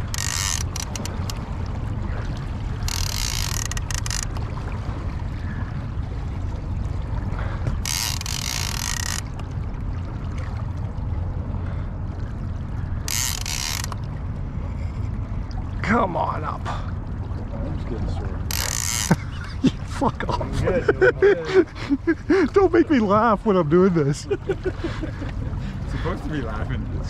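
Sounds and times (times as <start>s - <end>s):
fishing reel ratcheting: 0.0s - 1.4s, 2.8s - 4.4s, 7.8s - 9.5s, 13.1s - 14.0s, 18.5s - 19.2s
steady low rumble: 0.0s - 27.0s.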